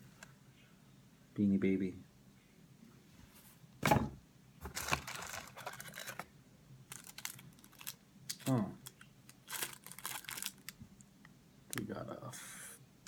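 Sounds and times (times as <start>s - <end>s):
plastic packaging crinkling and tearing: 4.6s - 6.3s, 6.9s - 10.8s.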